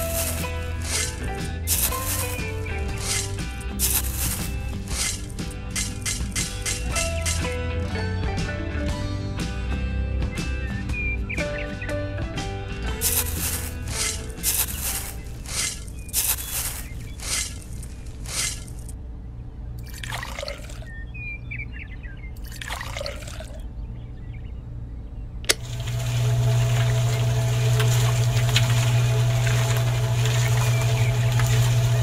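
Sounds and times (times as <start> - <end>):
sand and cement tipped into drum: 0.0 - 7.5, 13.0 - 18.9
water pouring: 0.0 - 7.6, 19.8 - 20.9, 22.4 - 23.6, 25.6 - 32.0
click: 25.4 - 25.6
mixer electric motor hum: 25.5 - 32.0.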